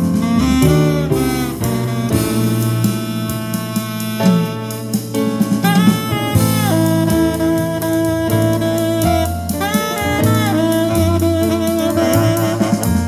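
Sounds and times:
instrumental jazz with saxophone: 0:00.0 - 0:13.0.

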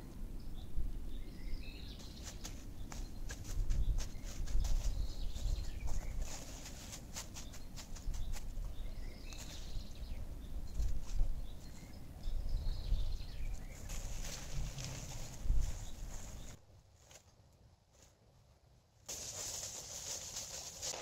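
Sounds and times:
dry leaves crackling: 0:02.0 - 0:08.6, 0:13.5 - 0:17.3, 0:19.1 - 0:21.0.

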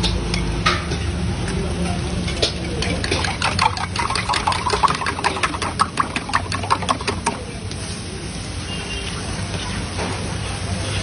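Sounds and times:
metal cooking utensils clinking: 0:02.2 - 0:07.2.

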